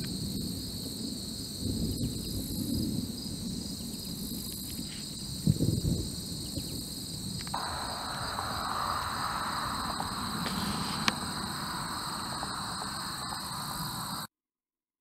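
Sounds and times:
insects buzzing: 0:00.0 - 0:14.3
brief low rumble: 0:07.6 - 0:14.1
lower buzzing: 0:07.6 - 0:14.3.

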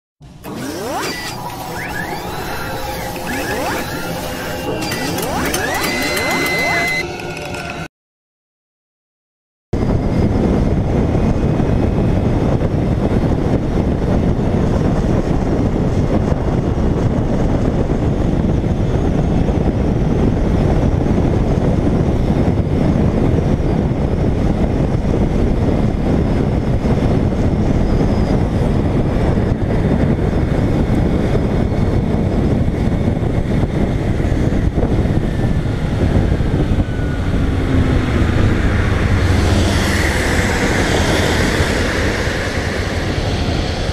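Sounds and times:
wind on microphone: 0:09.8 - 0:43.9.

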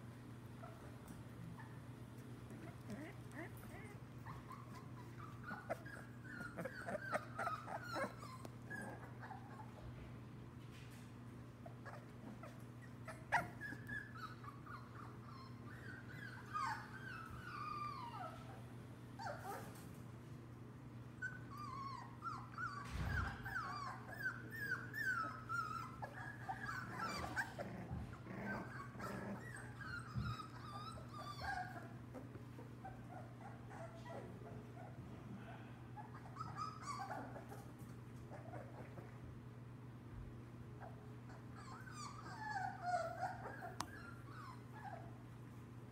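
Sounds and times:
puppies whimpering and yipping: 0:02.5 - 0:09.9, 0:11.6 - 0:20.0, 0:21.1 - 0:35.0, 0:36.0 - 0:39.2, 0:40.8 - 0:45.4
thump: 0:22.8 - 0:23.4.

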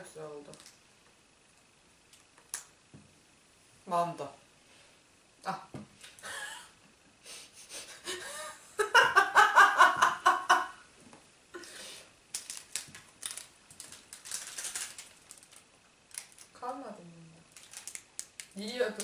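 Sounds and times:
woman laughing: 0:06.2 - 0:06.8, 0:07.7 - 0:10.8
plastic packets rustling: 0:12.3 - 0:16.6, 0:17.5 - 0:19.0.

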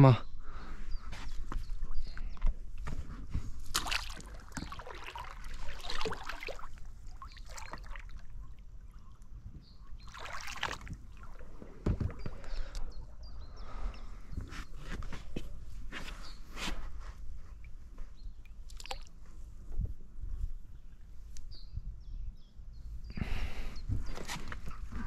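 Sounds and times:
oars splashing in water: 0:02.8 - 0:15.0, 0:18.4 - 0:19.2.

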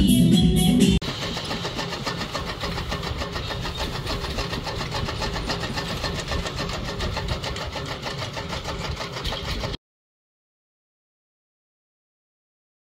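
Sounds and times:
chaff cutter chopping cane: 0:01.0 - 0:09.8.

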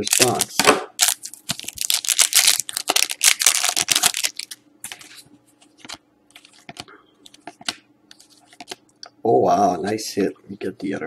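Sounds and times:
foil wrapper crinkling and tearing: 0:00.0 - 0:05.2
cards clicking and rustling: 0:00.0 - 0:08.8.

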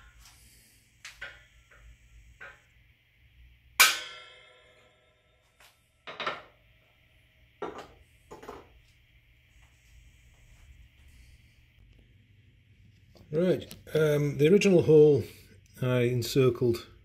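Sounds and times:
hammer striking metal punch: 0:03.8 - 0:05.1.

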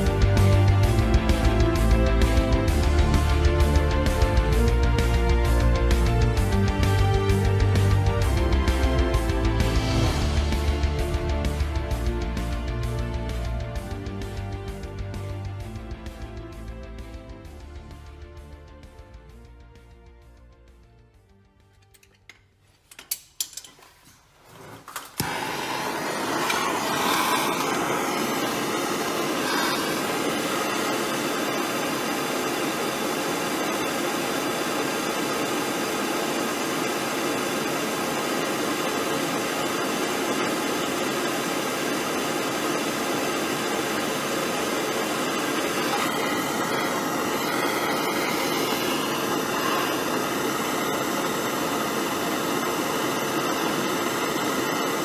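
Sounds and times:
gas torch flame hissing: 0:24.1 - 0:55.0
gas torch igniter click: 0:24.9 - 0:30.3.

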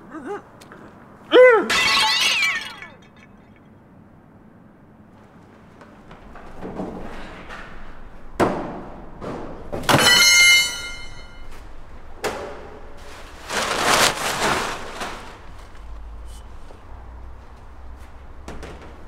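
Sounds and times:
loud metallic clang: 0:09.8 - 0:11.5
plastic sheeting rustling: 0:12.9 - 0:16.7
knocks: 0:18.4 - 0:19.0.

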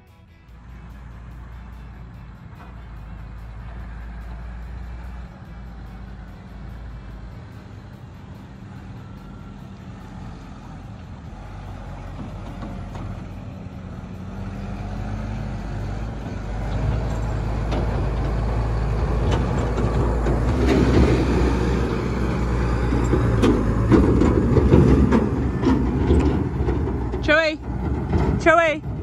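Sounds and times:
tractor diesel engine: 0:00.0 - 0:29.0
metal clanks: 0:16.2 - 0:29.0.

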